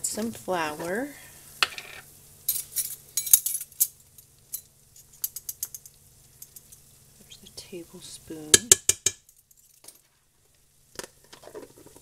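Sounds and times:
metal spoon clinking in container: 4.6s - 6.8s.

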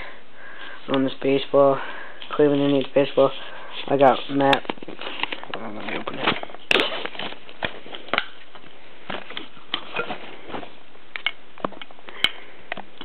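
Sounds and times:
baseball handling clicks and taps: 4.4s - 9.9s, 11.1s - 13.0s.

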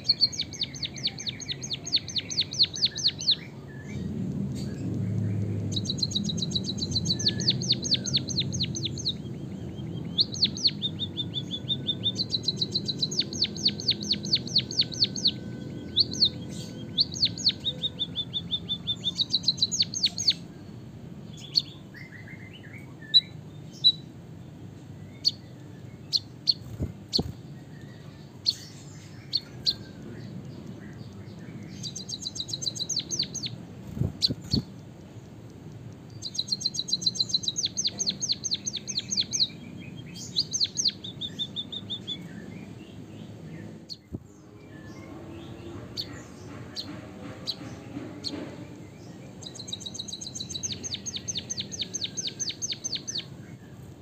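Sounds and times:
bird singing trills: 0.0s - 54.0s.

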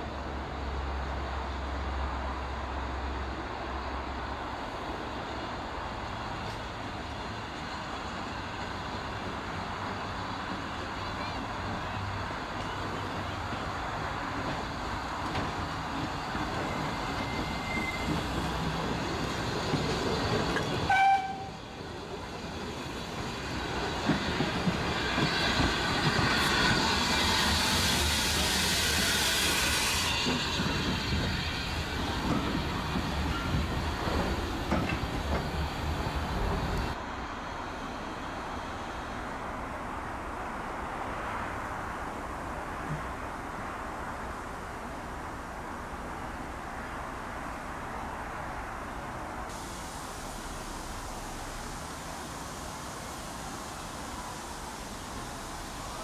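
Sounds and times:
steam locomotive running slowly: 0.0s - 56.0s
hiss of escaping steam: 15.0s - 37.0s, 49.5s - 56.0s
steam whistle note: 20.9s - 21.6s.

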